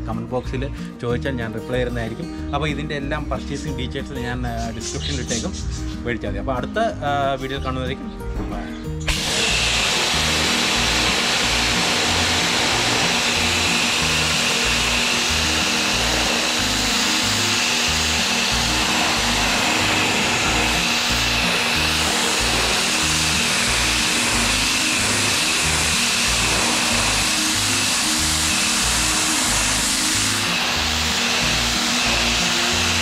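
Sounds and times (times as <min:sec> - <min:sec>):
background music with steady beat: 0:00.0 - 0:33.0
pressure washer jet hissing: 0:09.0 - 0:33.0.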